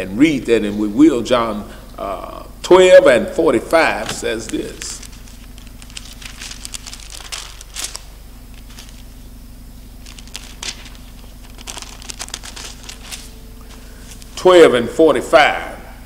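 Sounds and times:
low steady hum: 0.0s - 16.0s
pages turning: 3.9s - 9.2s, 10.0s - 14.4s.

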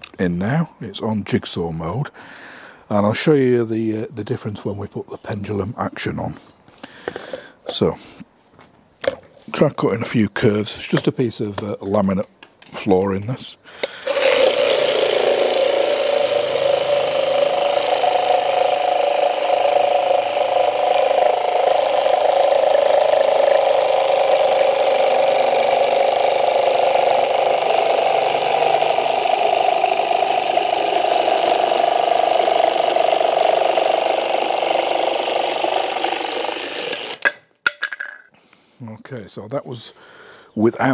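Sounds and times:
jigsaw cutting wood: 13.9s - 37.3s.

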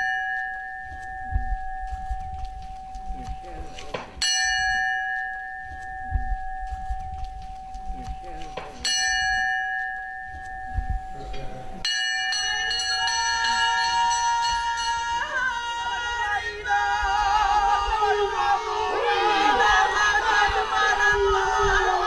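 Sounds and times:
steady held tones: 12.3s - 22.0s
women singing wavering call: 12.5s - 22.0s.

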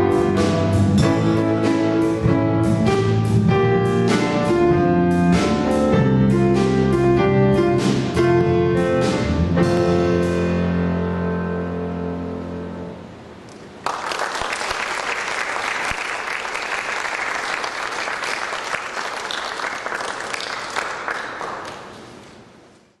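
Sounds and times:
audience applause: 13.8s - 22.3s.

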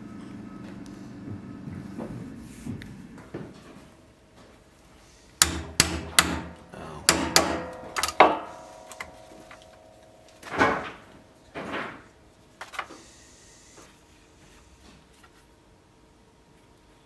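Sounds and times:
hammer striking pricking iron: 5.4s - 11.2s
short metallic ring: 7.3s - 10.8s.

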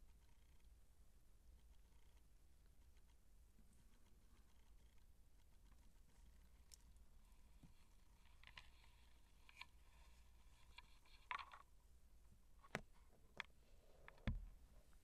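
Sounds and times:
kittens scratching and clicking: 3.9s - 11.7s.

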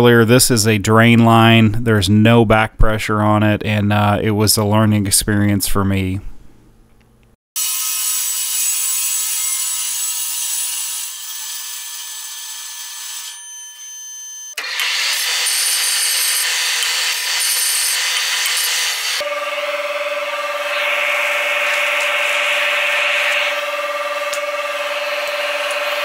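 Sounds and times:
bandsaw cutting steel pipe: 7.6s - 14.0s, 14.6s - 26.0s
abrasive grinding of metal: 14.6s - 26.0s.

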